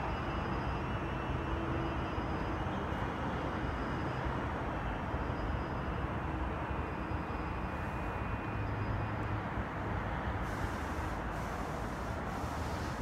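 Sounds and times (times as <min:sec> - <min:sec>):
faint high whine: 0:00.0 - 0:09.3
distant train rumble and hiss: 0:00.0 - 0:13.0.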